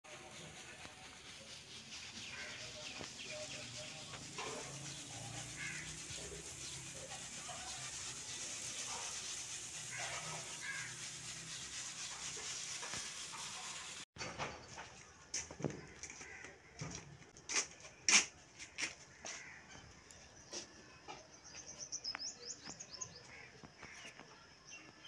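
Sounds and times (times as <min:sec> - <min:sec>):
grain pouring onto cloth: 0:00.3 - 0:13.9.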